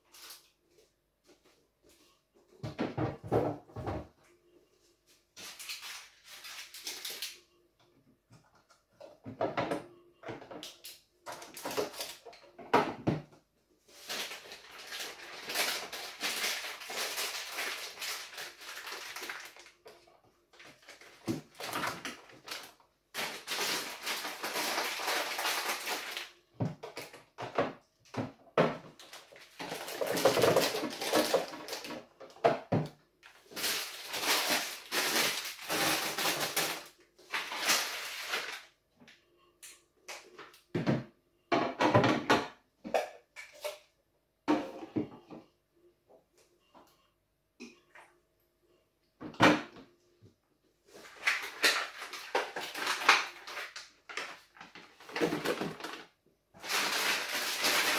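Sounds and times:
food packets rustling: 5.3 - 7.4, 10.7 - 12.3, 13.8 - 27.3, 28.9 - 38.8, 50.9 - 57.9.

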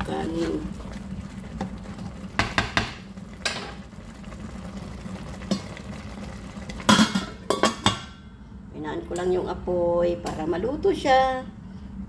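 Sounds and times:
spoon knocking and scraping pot: 2.4 - 3.8.

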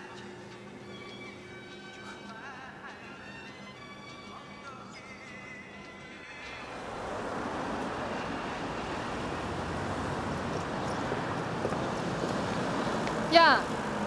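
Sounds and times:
road traffic rushing: 6.0 - 14.0.

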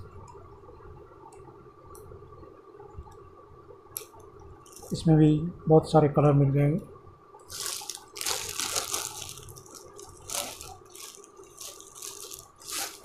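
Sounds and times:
plastic packaging crinkling: 4.7 - 5.0, 7.5 - 13.0.

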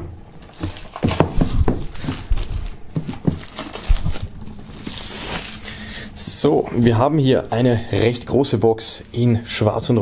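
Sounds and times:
plastic film crinkling: 0.4 - 5.9
dull knocks: 1.0 - 2.3.

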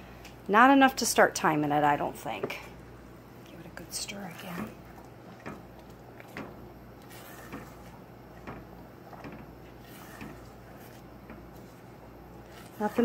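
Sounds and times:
low steady hum: 0.0 - 13.0
spatula scraping saucepan: 7.0 - 8.0, 9.1 - 13.0.

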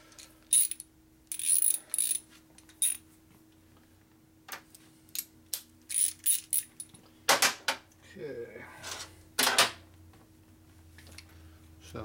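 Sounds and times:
faint steady hum: 0.0 - 12.0
metal tools clinking on steel table: 0.1 - 2.2, 2.8 - 3.0, 5.9 - 7.0.

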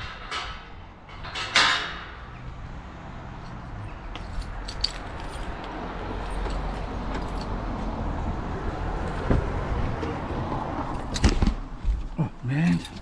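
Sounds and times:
steady outdoor noise: 0.0 - 13.0
keys jangling: 4.2 - 7.6, 12.7 - 13.0.

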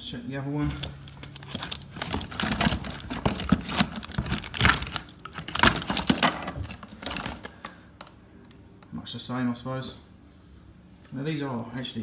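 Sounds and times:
fishing tackle rattling: 1.0 - 7.5.

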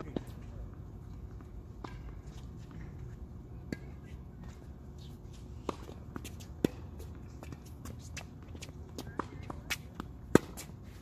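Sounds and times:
tennis ball struck by racquets: 5.6 - 7.9, 9.2 - 10.8.

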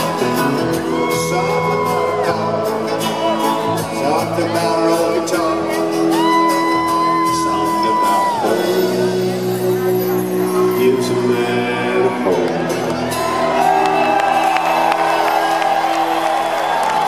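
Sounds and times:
live band music: 0.0 - 17.0
audience shouting and whooping: 0.6 - 3.8, 6.0 - 8.8, 13.0 - 17.0.

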